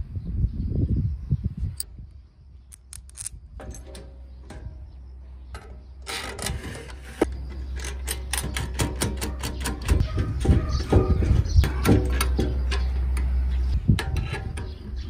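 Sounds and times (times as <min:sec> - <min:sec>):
metal parts clattering and rubbing: 0:02.7 - 0:04.1
metal parts clicking and clinking: 0:02.7 - 0:04.2.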